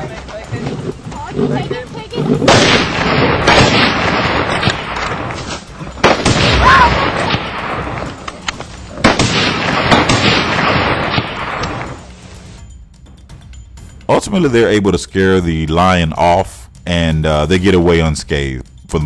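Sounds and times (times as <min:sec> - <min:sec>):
loud gunshots: 0:02.4 - 0:08.1, 0:09.0 - 0:12.0
people shouting: 0:06.5 - 0:07.4.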